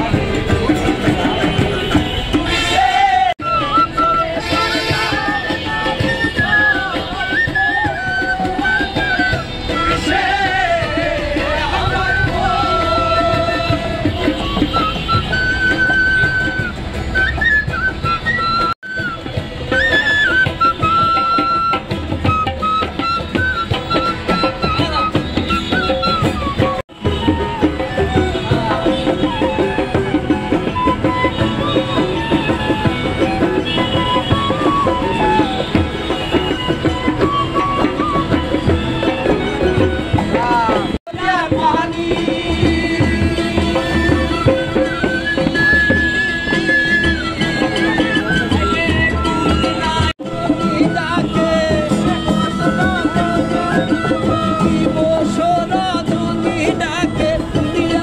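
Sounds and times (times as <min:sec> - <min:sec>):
bamboo flute melody: 0:00.0 - 0:58.0
bamboo flute note: 0:14.3 - 0:40.9.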